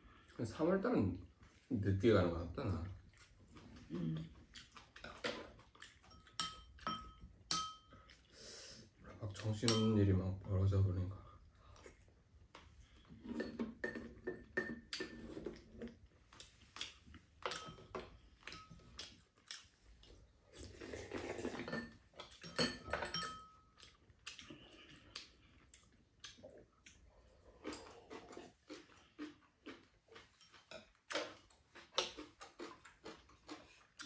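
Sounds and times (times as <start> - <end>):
utensils clinking on ceramic bowls: 6.0 - 8.0, 9.5 - 10.1, 17.4 - 19.6, 21.5 - 23.8
slurping soup: 20.4 - 22.0.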